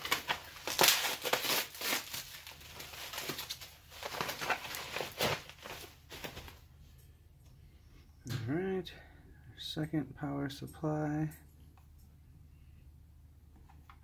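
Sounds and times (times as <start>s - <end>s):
packaging crinkling and rustling: 0.0s - 6.7s.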